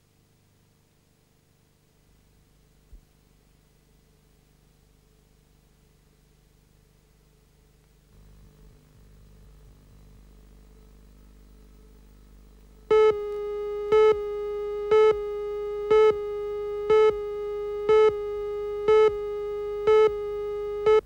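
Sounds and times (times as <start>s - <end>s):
faint hum: 0.0s - 21.0s
countdown beeps: 16.8s - 17.2s, 17.9s - 18.2s.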